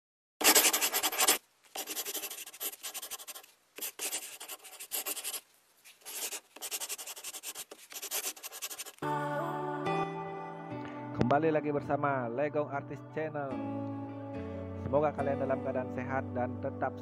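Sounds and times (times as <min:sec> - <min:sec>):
drawing strokes scratching paper: 0:00.4 - 0:09.0.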